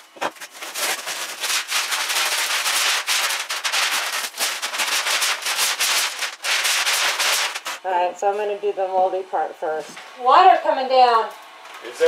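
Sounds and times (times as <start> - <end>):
insulation crackling and tearing: 0.0 - 8.0.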